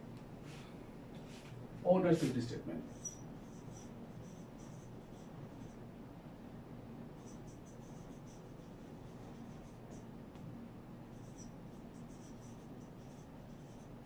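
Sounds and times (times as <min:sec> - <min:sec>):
marker squeaking on whiteboard: 0:02.9 - 0:05.8, 0:07.2 - 0:10.0, 0:11.1 - 0:14.0.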